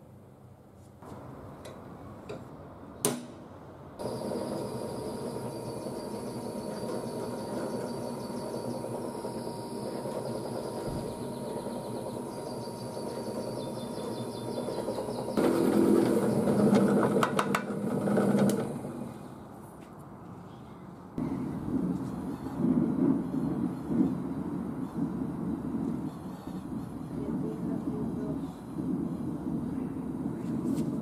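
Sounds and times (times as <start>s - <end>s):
drill bit cutting steel rattle: 4.0s - 18.9s
drill press motor whine: 4.0s - 19.2s.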